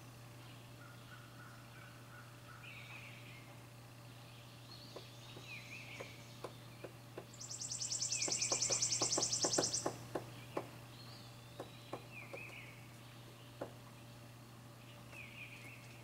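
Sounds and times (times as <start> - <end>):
birds chirping faintly: 0.0 - 16.0
woodpecker tapping on wood: 4.9 - 7.4, 8.2 - 10.8, 11.5 - 13.9
bird trilling: 7.4 - 10.0.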